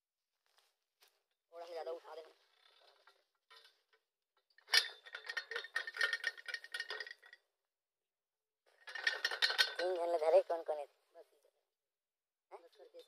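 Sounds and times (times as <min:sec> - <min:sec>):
person speaking: 0:01.5 - 0:02.4, 0:09.8 - 0:11.6, 0:12.5 - 0:13.0
rapid rattling and clinking: 0:02.6 - 0:07.5, 0:08.7 - 0:10.4.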